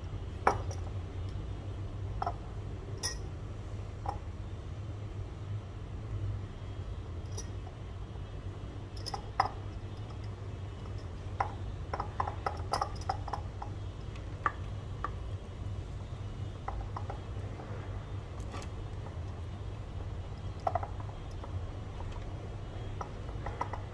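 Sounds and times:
steady low hum: 0.0s - 23.9s
taps and clinks on glass jar: 0.4s - 1.4s, 3.0s - 3.3s, 8.9s - 13.8s.

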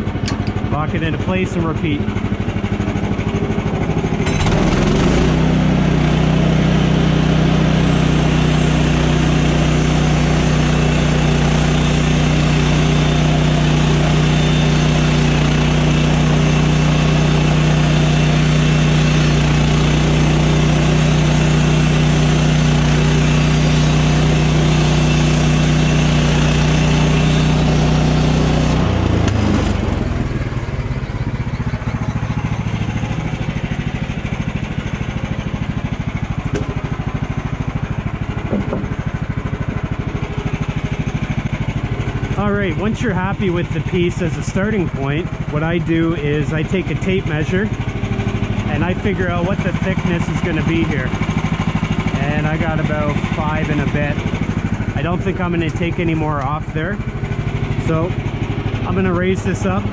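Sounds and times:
sawmill engine running: 0.0s - 59.9s
bandsaw blade cutting log: 4.2s - 30.1s, 36.2s - 39.8s, 48.5s - 59.9s.

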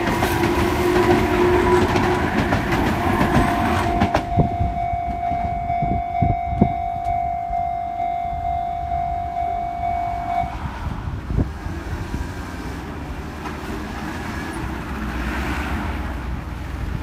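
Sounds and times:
road traffic rumbling: 0.0s - 17.0s
scooter and car engines: 0.0s - 17.0s
level crossing warning bell: 2.9s - 10.6s.

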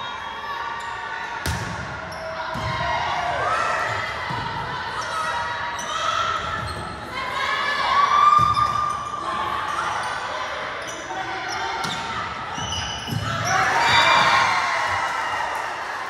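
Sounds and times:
sneakers squeaking on gym floor: 0.8s - 2.7s, 8.3s - 14.2s.

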